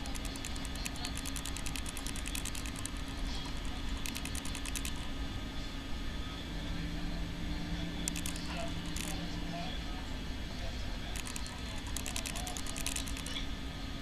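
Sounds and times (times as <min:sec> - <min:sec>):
rapid mechanical clicking: 0:00.0 - 0:05.2, 0:08.0 - 0:09.2, 0:11.1 - 0:13.4.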